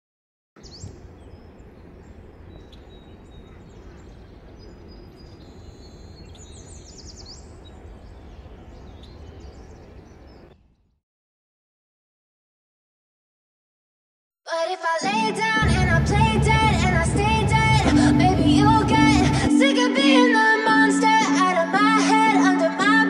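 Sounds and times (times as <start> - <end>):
bird trill: 0.6 - 10.6
birds chirping: 0.6 - 11.0, 15.6 - 19.5
low rushing noise: 15.6 - 19.5.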